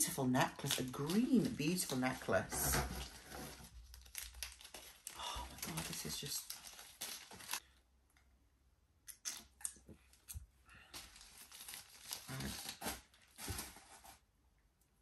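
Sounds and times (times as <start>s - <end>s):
gift packaging rustling and crinkling: 0.1s - 7.6s, 10.8s - 14.2s.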